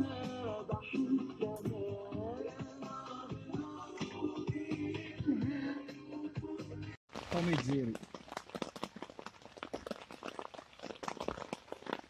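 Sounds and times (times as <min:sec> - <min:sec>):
song with sung melody and percussion: 0:00.0 - 0:07.0.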